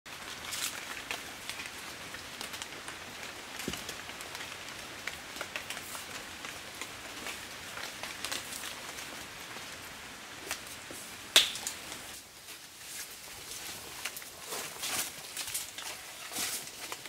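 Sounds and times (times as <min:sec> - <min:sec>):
rain pattering on leaves: 0:00.1 - 0:17.0.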